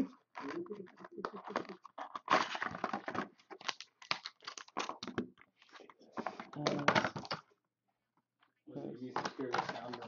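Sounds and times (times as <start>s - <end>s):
cardboard box opening: 0.4s - 5.1s
foil packs crinkling: 0.4s - 5.2s.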